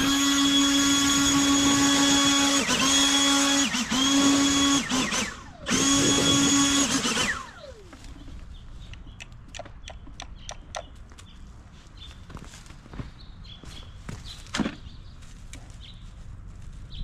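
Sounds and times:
power tool motor whining: 0.0s - 8.4s.

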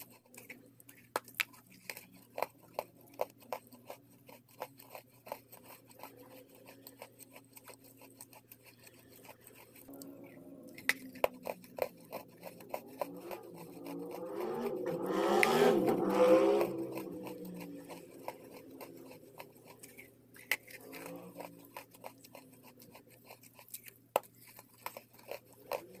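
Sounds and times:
wet chalk crunching: 10.8s - 26.0s.

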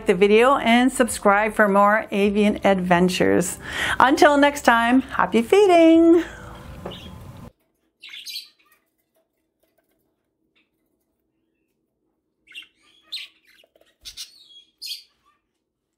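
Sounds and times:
budgerigars chirping: 6.9s - 7.4s, 8.0s - 8.8s, 12.4s - 15.4s.

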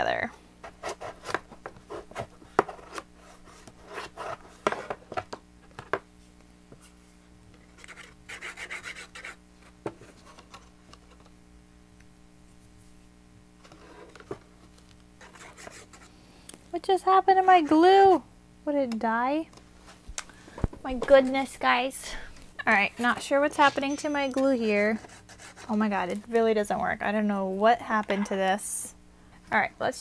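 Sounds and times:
paper rubbing: 24.9s - 25.8s.

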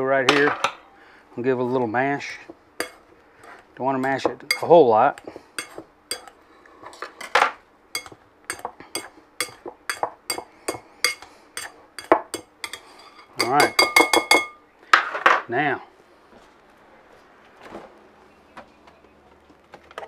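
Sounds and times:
potato masher clinking in bowl: 2.8s - 6.4s, 8.0s - 14.6s.

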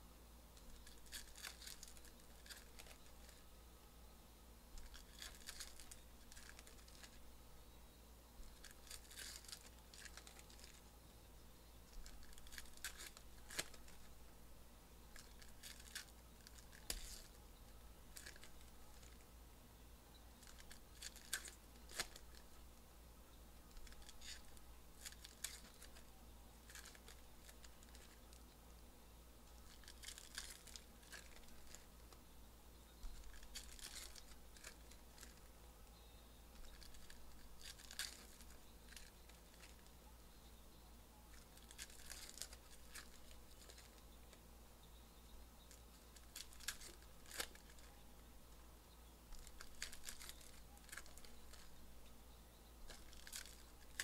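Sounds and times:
foil packs tearing and crinkling: 29.6s - 31.8s, 33.2s - 35.3s, 36.6s - 39.8s, 41.6s - 43.9s, 52.9s - 54.0s.

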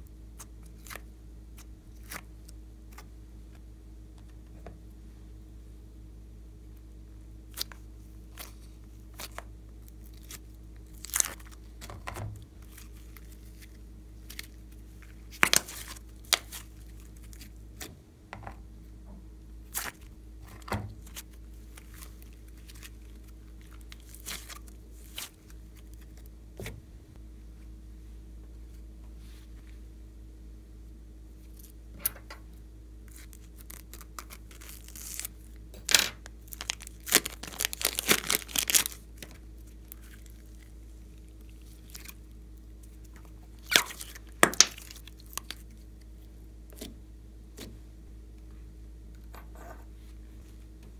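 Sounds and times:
plastic piping bag crinkling: 7.6s - 17.6s, 19.7s - 26.3s, 33.1s - 46.0s.

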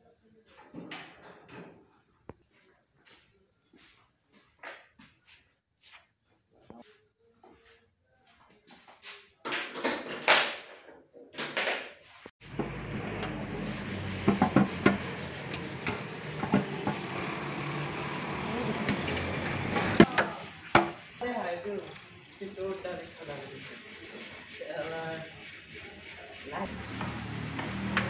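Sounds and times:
panels rubbing and scraping: 12.0s - 22.1s, 22.9s - 28.0s
sharp clicks and knocks: 12.4s - 17.0s.

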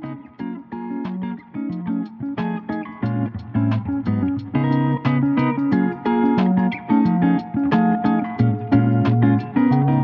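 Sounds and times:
plucked guitar music: 0.0s - 10.0s.

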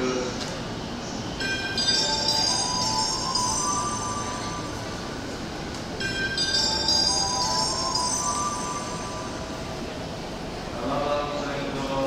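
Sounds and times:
electronic bell chime melody: 1.4s - 5.4s, 6.0s - 10.0s.

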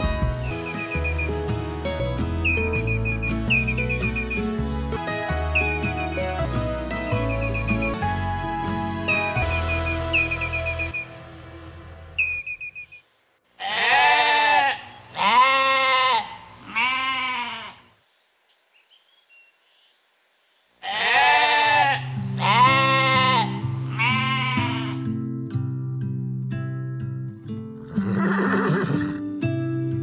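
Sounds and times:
soft background music: 0.0s - 12.2s
goats bleating: 13.6s - 17.8s, 20.8s - 25.1s.

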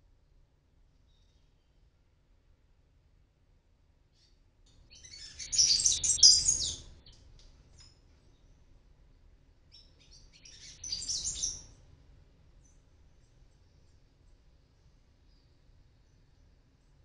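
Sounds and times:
birds chirping: 5.2s - 6.8s.

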